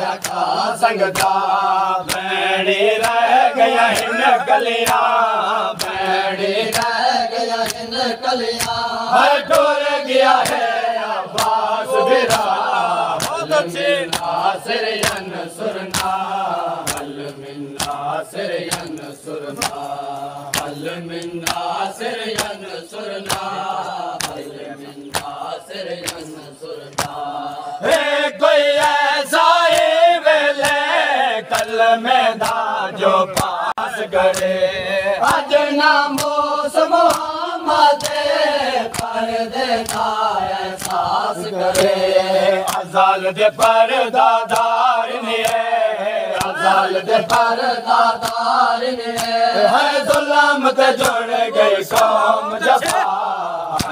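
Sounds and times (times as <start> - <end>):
men chanting a lament: 0.0 - 53.9
chest-beating slaps: 0.1 - 2.4, 3.0 - 3.3, 3.9 - 4.2, 4.8 - 5.2, 5.8 - 7.0, 7.6 - 7.9, 8.5 - 8.9, 10.4 - 28.0, 29.7 - 30.9, 31.5 - 31.8, 32.4 - 32.7, 33.3 - 33.6, 36.1 - 36.4, 37.1 - 37.3, 38.9 - 39.2, 40.8 - 41.9, 42.6 - 43.0, 44.5 - 44.8, 45.4 - 45.6, 46.3 - 49.4, 51.0 - 51.3, 51.9 - 53.1, 53.7 - 53.9.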